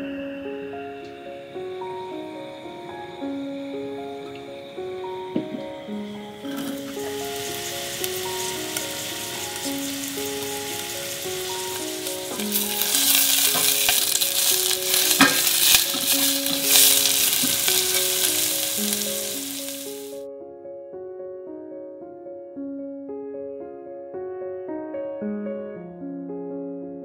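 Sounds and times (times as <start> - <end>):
onions sizzling in oil: 1.5 - 20.2.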